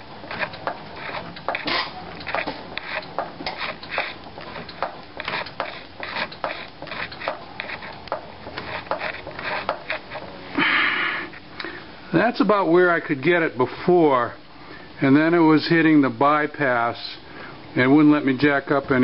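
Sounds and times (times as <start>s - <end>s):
floor jack pumping clicks: 0.0s - 10.2s.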